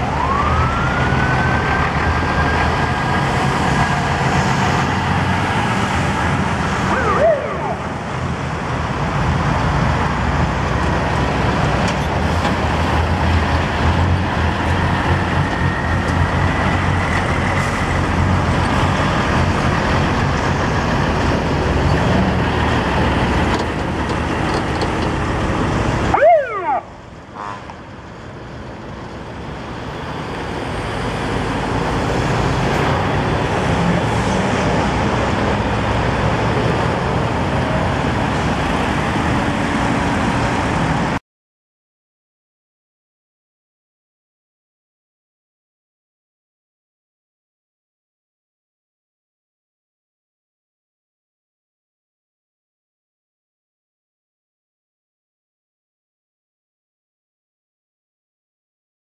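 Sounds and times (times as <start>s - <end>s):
diesel truck engines passing: 0.0s - 41.2s
road traffic: 0.0s - 41.2s.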